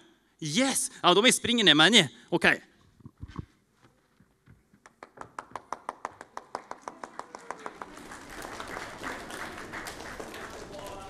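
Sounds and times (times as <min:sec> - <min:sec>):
applause with crowd noise: 0:04.8 - 0:11.0
fast hand clapping: 0:04.8 - 0:11.0.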